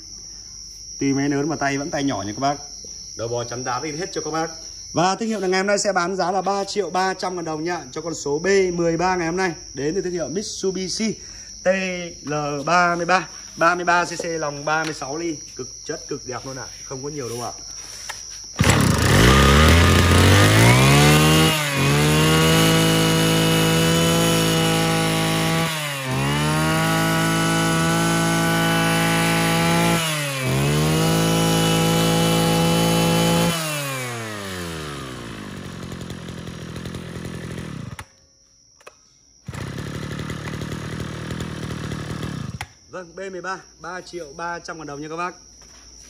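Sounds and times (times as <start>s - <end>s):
brush cutter engine revving: 18.6s - 38.2s, 39.5s - 42.8s.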